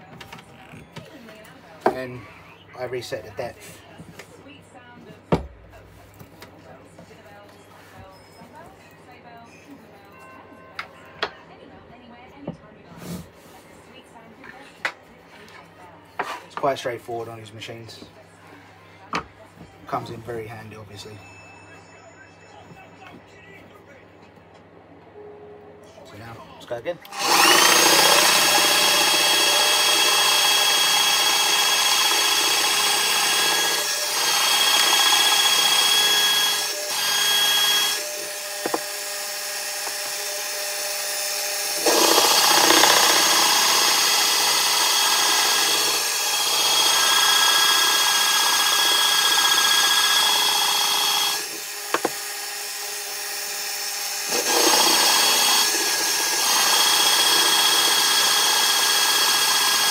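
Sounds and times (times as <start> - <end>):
drill bit boring into wood: 27.1 - 59.9
drill press motor whine: 27.1 - 59.9.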